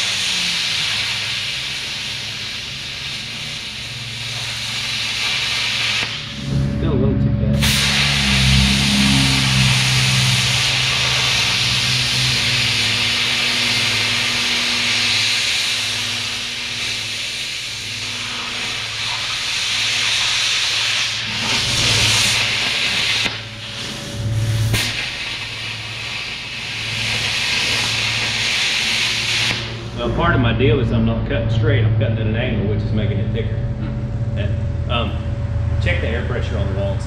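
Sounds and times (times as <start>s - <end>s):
plasma cutter torch hissing: 0.0s - 6.6s, 7.6s - 30.4s
low hum: 0.0s - 37.0s.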